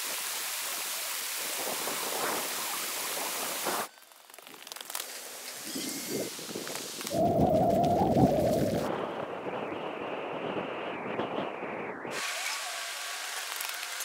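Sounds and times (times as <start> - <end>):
outdoor ambience: 0.0 - 14.0
wind buffeting microphone: 5.7 - 12.2.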